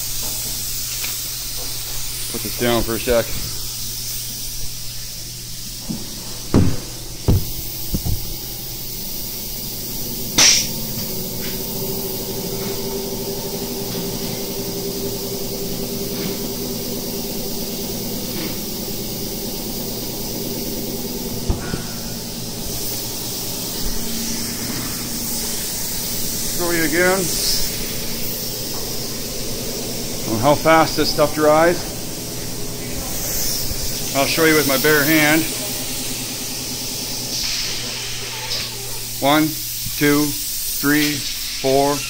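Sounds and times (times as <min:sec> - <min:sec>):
steady hiss: 0:00.0 - 0:42.0.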